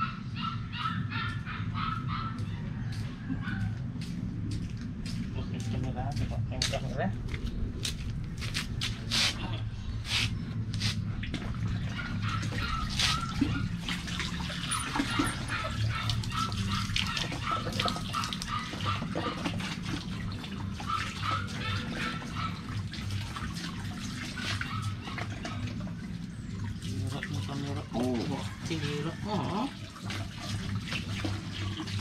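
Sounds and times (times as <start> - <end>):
water splashing into plastic bucket: 29.5 - 32.0.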